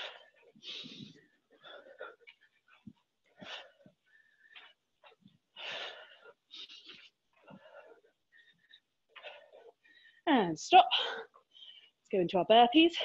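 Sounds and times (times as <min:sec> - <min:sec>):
woman breathing hard: 0:00.0 - 0:10.2.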